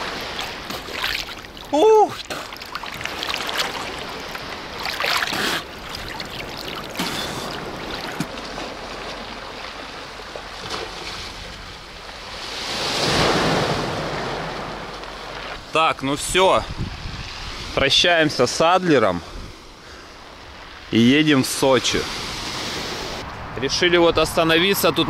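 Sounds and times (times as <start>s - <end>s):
water sloshing: 0.0s - 15.7s
waves washing onto pebble beach: 12.4s - 15.2s.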